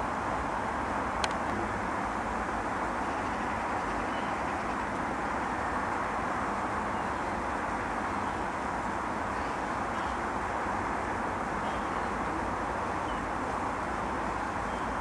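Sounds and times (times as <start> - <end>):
distant road traffic roar: 0.0 - 15.0
faint bird chirps: 3.0 - 5.5, 9.3 - 10.3, 11.6 - 13.4, 14.1 - 15.0.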